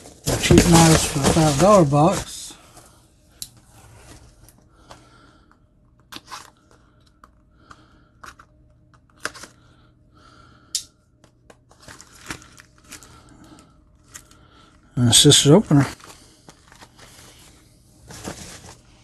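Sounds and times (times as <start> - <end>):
cardboard boxes handled and opened: 0.0 - 2.5.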